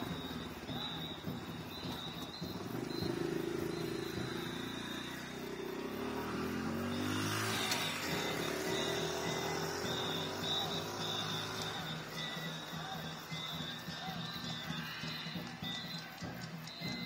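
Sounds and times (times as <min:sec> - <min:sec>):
vehicle engine passing: 0:00.0 - 0:15.6.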